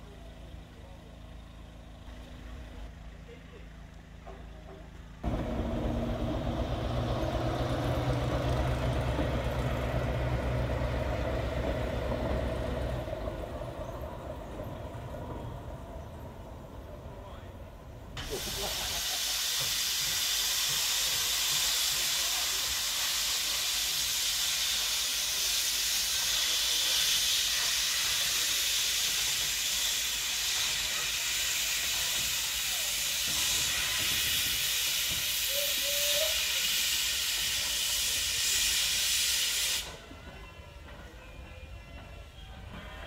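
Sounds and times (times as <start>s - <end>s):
loud hiss of escaping steam: 18.2s - 40.1s.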